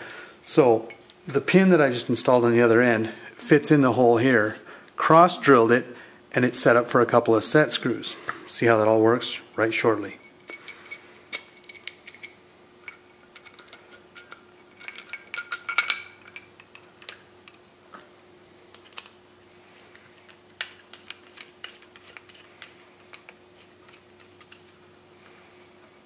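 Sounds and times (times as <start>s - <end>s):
faint steady hum: 0.0s - 26.0s
metal parts clicking and clinking: 9.5s - 17.7s, 18.7s - 19.2s, 20.0s - 24.8s.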